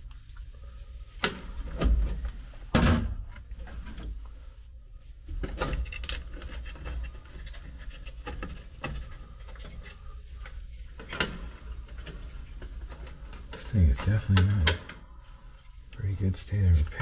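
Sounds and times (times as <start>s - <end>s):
wiring clicks and rustling: 5.3s - 17.0s.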